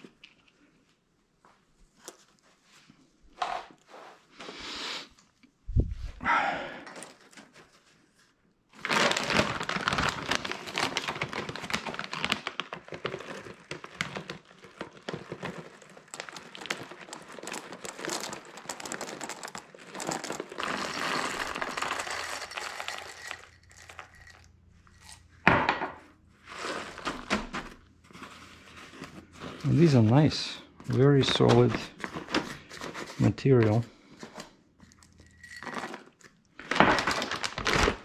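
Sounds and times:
dried beans poured into bag: 0:08.8 - 0:25.2, 0:29.5 - 0:31.9.

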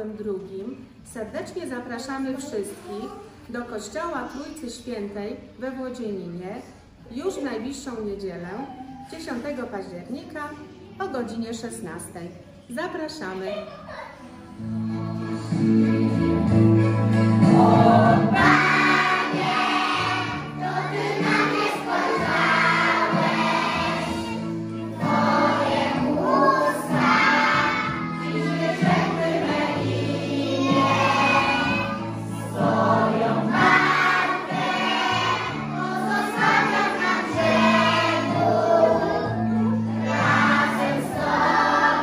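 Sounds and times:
children's choir singing: 0:14.5 - 0:42.0
women singing: 0:17.4 - 0:24.4, 0:25.0 - 0:42.0.

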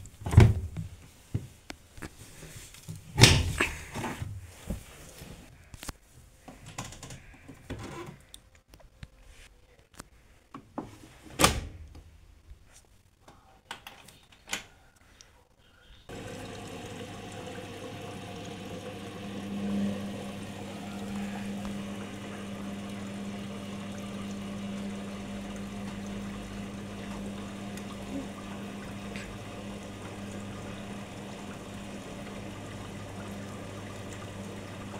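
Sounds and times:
drum motor hum: 0:16.1 - 0:34.9
water rushing into washing machine: 0:16.1 - 0:34.9.

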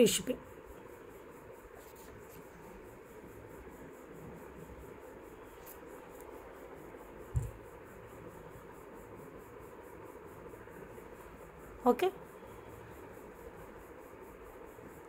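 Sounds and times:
dull low thump: 0:07.4 - 0:07.6.

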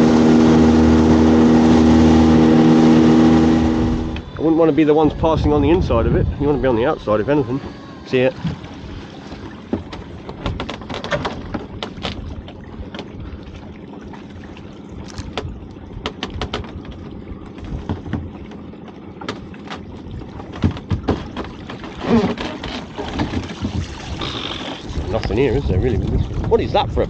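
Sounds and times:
water sloshing: 0:00.0 - 0:05.7, 0:06.4 - 0:27.0
rope and pot knocking against hull: 0:09.2 - 0:13.4, 0:15.0 - 0:26.8
water dripping and splashing: 0:22.8 - 0:25.4.

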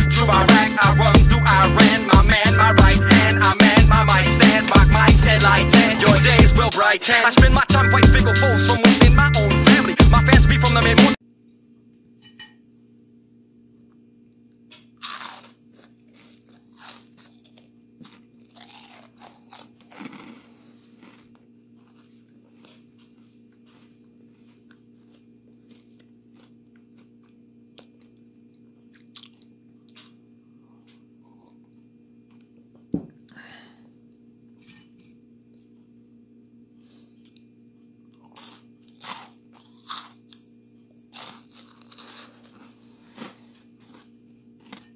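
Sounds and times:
person crunching bread sticks: 0:14.8 - 0:32.6, 0:37.0 - 0:44.9.

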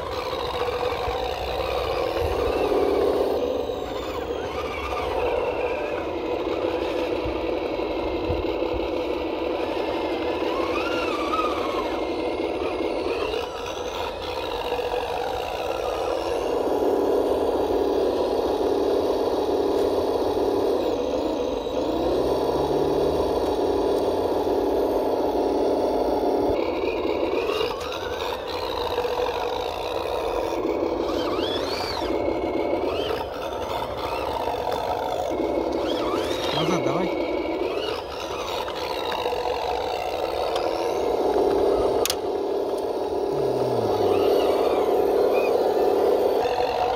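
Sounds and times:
toy truck motor whirring: 0:00.0 - 0:46.9
wheels driving through muddy water: 0:31.0 - 0:41.0.

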